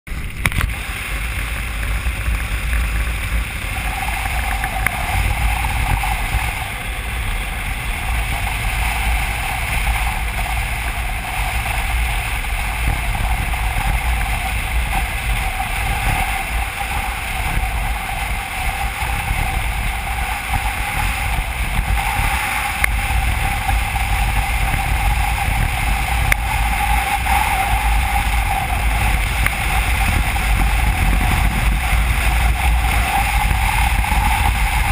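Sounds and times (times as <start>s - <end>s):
engine and tyre hum: 0.1s - 34.9s
wind rushing over microphone: 0.1s - 34.9s.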